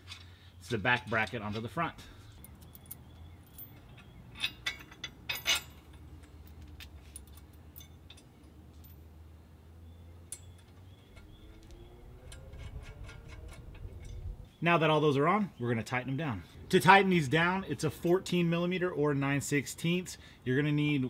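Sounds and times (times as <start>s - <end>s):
bolts and nuts clinking on metal: 0.0s - 9.2s, 10.2s - 14.4s, 16.7s - 20.1s.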